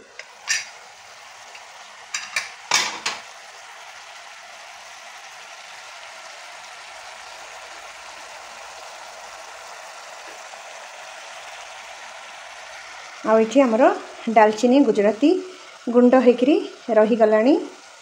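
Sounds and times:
chicken sizzling: 0.0s - 18.0s
metal lid clicks and clanks: 0.2s - 0.7s, 2.1s - 3.2s.

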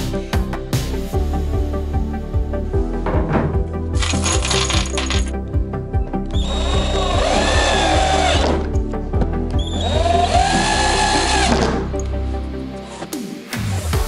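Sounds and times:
background music with beat: 0.0s - 14.0s
cordless drill motor whine: 6.4s - 8.7s, 9.6s - 11.7s.

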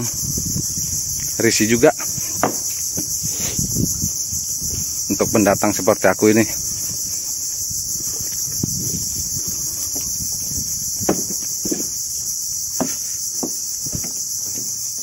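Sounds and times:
insect chorus drone: 0.0s - 15.0s
soft footsteps: 6.6s - 12.1s.

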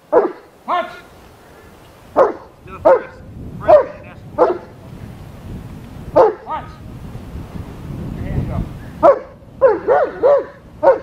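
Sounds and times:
dog barking: 0.1s - 0.5s, 2.1s - 4.8s, 6.1s - 6.8s, 9.0s - 11.0s.

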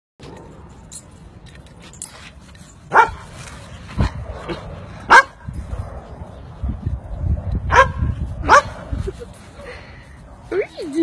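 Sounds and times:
dog barking: 2.9s - 3.2s, 5.1s - 5.4s, 7.7s - 8.7s.

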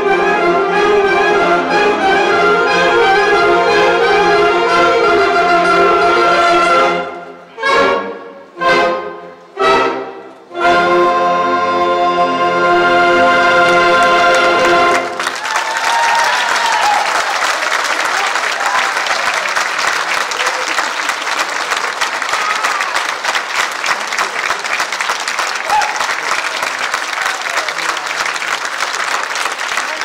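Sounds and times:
saxophone ensemble chord: 0.0s - 15.3s
audience applause: 13.6s - 30.0s
audience whooping: 14.0s - 24.9s, 25.5s - 30.0s.

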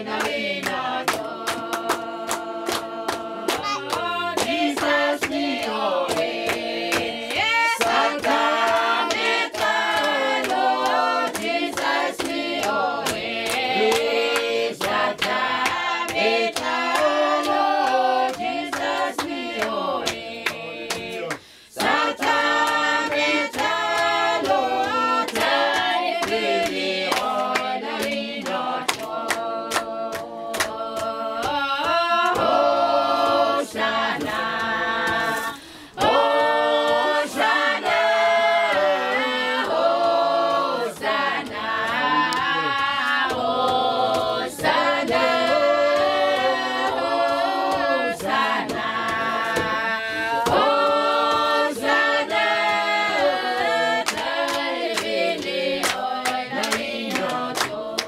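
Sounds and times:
group singing in parts: 0.0s - 58.0s
sharp rhythmic beats: 0.0s - 58.0s.

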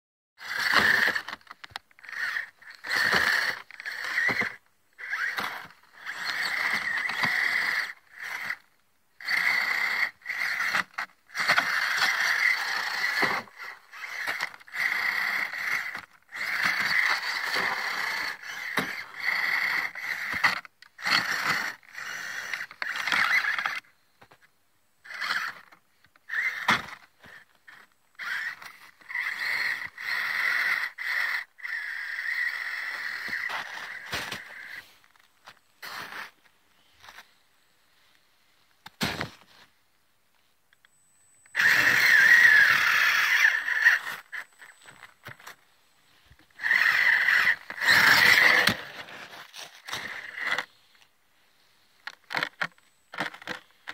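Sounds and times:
electric motor whining: 0.4s - 23.9s, 25.0s - 34.8s, 41.5s - 45.5s, 46.3s - 50.8s.

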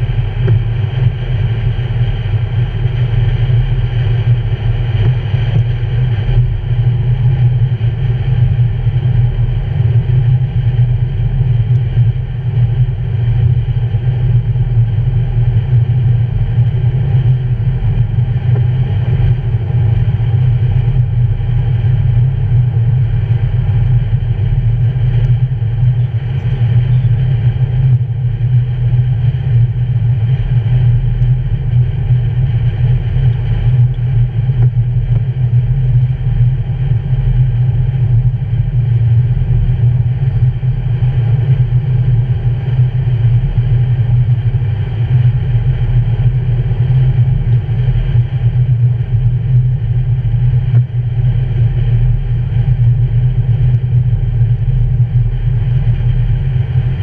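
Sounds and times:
car road noise: 0.0s - 43.8s.

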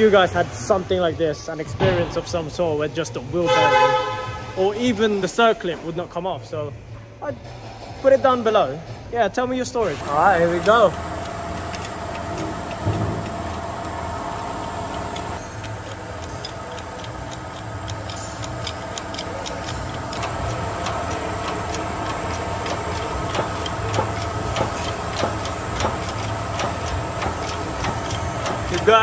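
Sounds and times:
steady mechanical hum: 0.0s - 29.0s
ticking clicks: 9.9s - 29.0s.

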